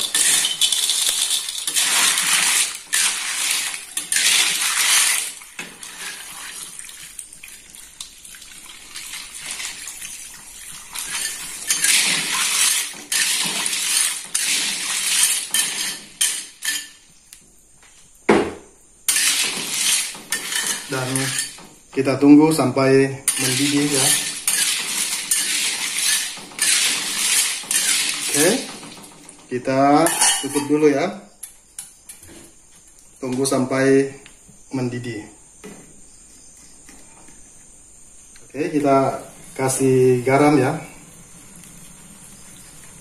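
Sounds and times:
pot and utensils clinking: 0.0 - 6.6, 10.7 - 17.0, 19.1 - 22.1, 23.3 - 29.3, 30.0 - 30.8
water pouring into pot: 0.0 - 16.2, 23.3 - 29.4.

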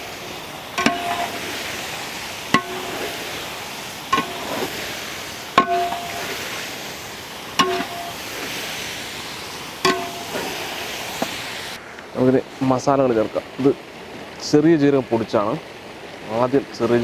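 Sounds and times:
frying sizzle: 0.0 - 15.6
spatula knocking metal pot: 0.8 - 1.5, 2.5 - 3.2, 4.1 - 4.8, 5.6 - 6.4, 7.6 - 8.2, 9.8 - 10.6.

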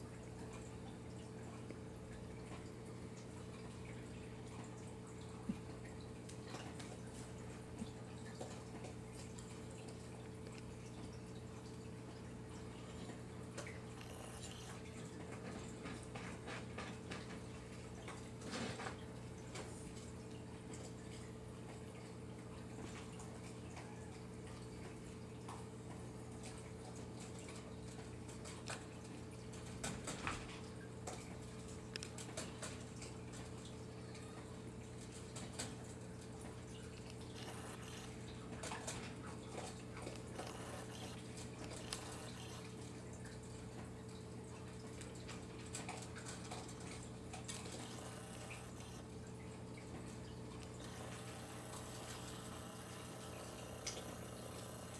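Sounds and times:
steady low hum: 33.2 - 54.9
animal chewing crunchy food: 36.8 - 42.8, 45.6 - 49.0.

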